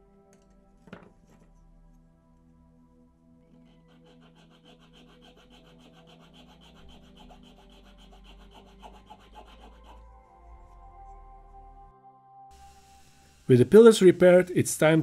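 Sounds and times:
needle file scraping metal: 3.6 - 10.8.

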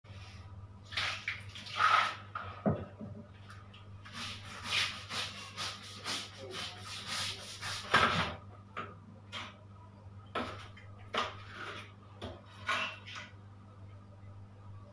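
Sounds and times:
brush scrubbing floor tiles: 0.1 - 2.3, 4.0 - 8.4.

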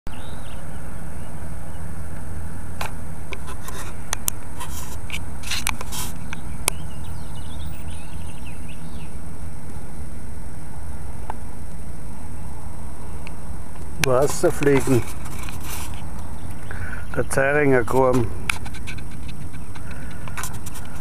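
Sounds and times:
faint high chirps: 6.2 - 9.8
sharp clicks and rattles: 13.2 - 21.0.

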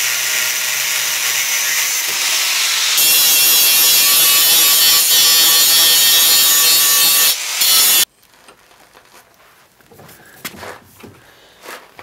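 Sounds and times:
angle grinder cutting steel: 0.0 - 8.1.

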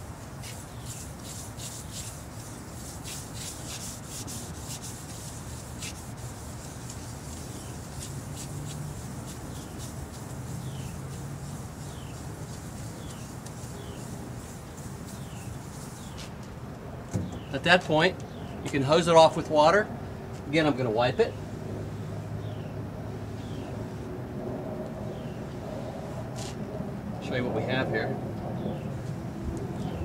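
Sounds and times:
scrubber rubbing on steel: 0.0 - 16.2.

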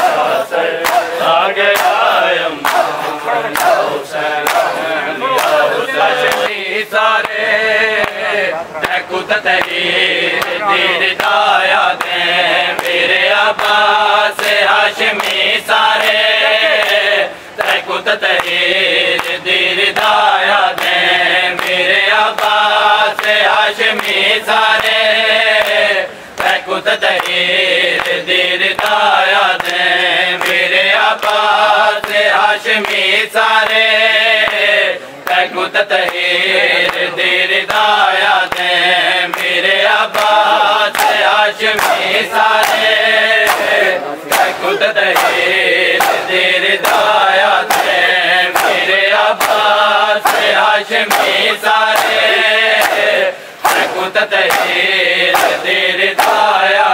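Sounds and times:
men chanting a lament: 0.0 - 56.9
hands slapping bare chests: 0.8 - 4.8, 40.1 - 56.6.

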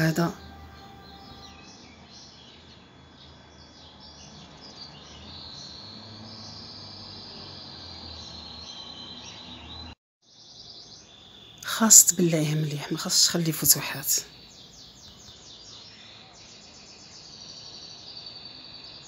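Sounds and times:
steady high trill: 0.0 - 1.7.

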